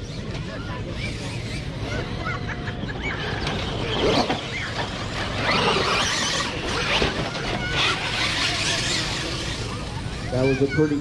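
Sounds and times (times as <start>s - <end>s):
toy truck motors whining: 0.0s - 11.0s
tyres churning dirt: 3.0s - 10.4s.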